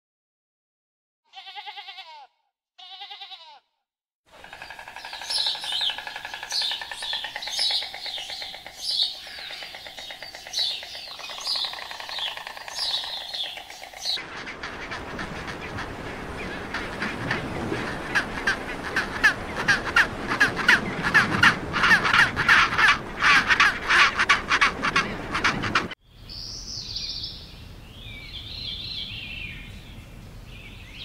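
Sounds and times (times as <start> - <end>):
wavering bleats: 1.3 - 3.7
chorus of birds chirping: 4.4 - 31.0.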